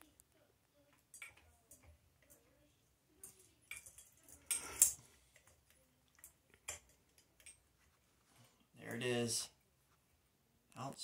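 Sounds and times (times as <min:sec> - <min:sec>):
chain clatter: 0:03.2 - 0:05.5
pull chain clicking and clinking: 0:03.2 - 0:05.5.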